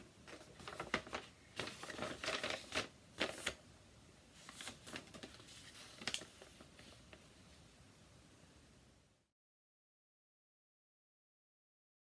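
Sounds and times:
paper rustling and crackling: 0:00.2 - 0:03.6, 0:04.3 - 0:07.2.

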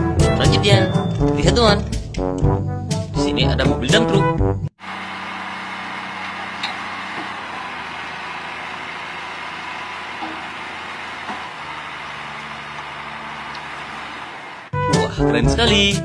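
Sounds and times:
diesel truck engine running: 0:04.8 - 0:14.8.

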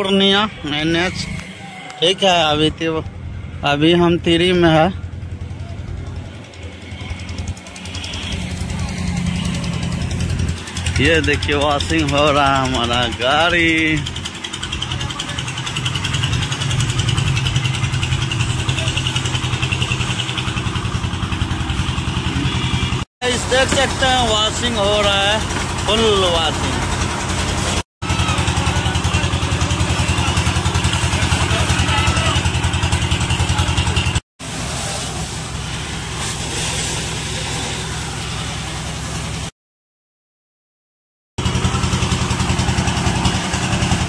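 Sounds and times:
machine engine pulsing: 0:00.0 - 0:39.5, 0:41.4 - 0:44.0
pump motor humming: 0:00.0 - 0:39.5, 0:41.4 - 0:44.0
pressure washer jet hissing on metal: 0:34.4 - 0:39.5.

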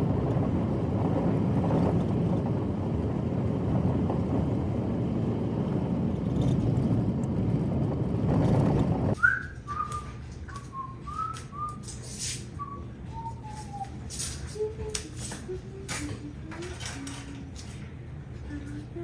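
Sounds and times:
whistle-like melody: 0:09.2 - 0:11.8, 0:12.6 - 0:16.3.

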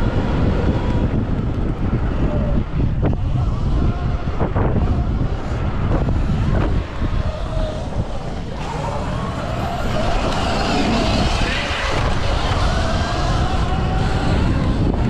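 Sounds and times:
electric motor whine: 0:00.0 - 0:15.0
wind buffeting microphone: 0:00.0 - 0:15.0.

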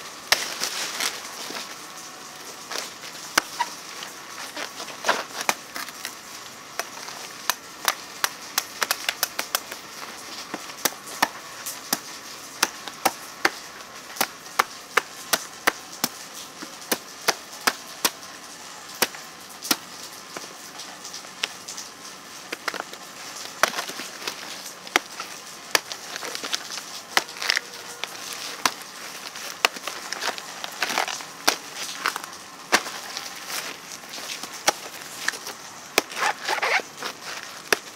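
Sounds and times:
cleaver chopping plant trunk: 0:22.6 - 0:37.9.

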